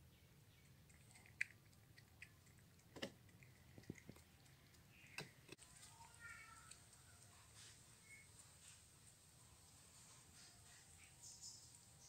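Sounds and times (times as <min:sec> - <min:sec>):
cat licking and chewing: 0:00.5 - 0:10.1.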